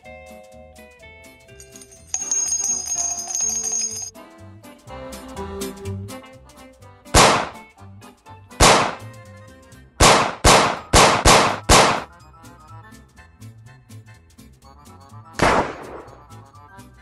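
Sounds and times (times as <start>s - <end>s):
background music: 0.0s - 17.0s
pistol gunshots: 7.2s - 7.6s, 8.6s - 9.1s, 10.0s - 12.1s, 15.4s - 16.2s.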